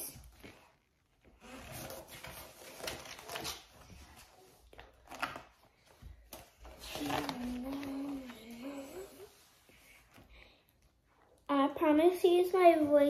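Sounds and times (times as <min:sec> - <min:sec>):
book pages turning: 0:00.2 - 0:10.3.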